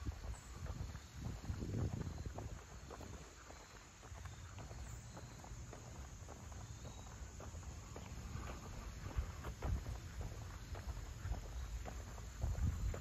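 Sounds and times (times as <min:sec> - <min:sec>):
footsteps in dry leaves: 0:00.0 - 0:13.0
insects chirping: 0:00.0 - 0:13.0.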